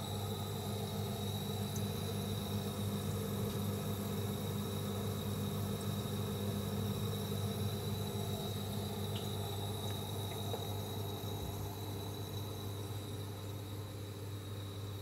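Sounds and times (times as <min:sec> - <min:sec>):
pump electric hum: 0:00.0 - 0:15.0
faint ticks: 0:09.0 - 0:10.7.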